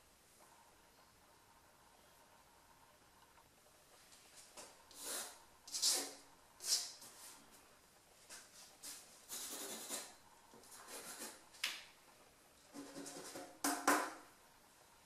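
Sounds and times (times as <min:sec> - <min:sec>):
pencil sketching on paper: 0:09.3 - 0:10.2.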